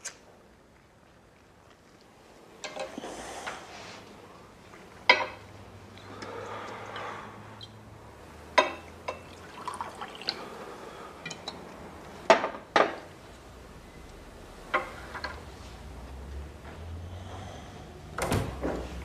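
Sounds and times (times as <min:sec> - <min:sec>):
glass bottles clinking: 0:08.6 - 0:10.3
liquor pouring into a glass: 0:09.1 - 0:10.6.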